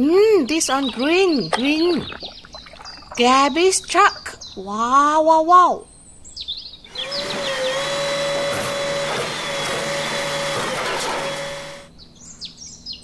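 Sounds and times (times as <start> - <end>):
small motor whirring: 6.9 - 11.9.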